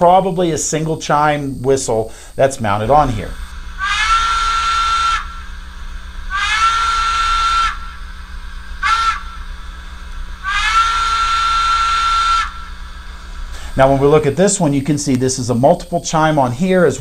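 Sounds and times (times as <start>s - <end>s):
steam whistle through small speaker: 3.7s - 13.1s.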